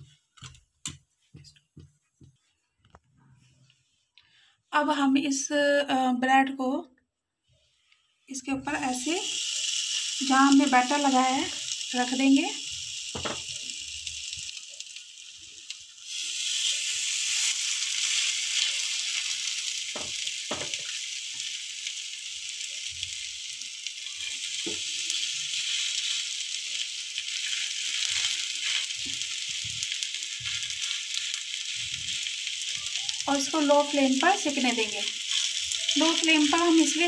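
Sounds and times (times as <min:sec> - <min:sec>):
bread slices sizzling in fat: 0:08.7 - 0:37.0.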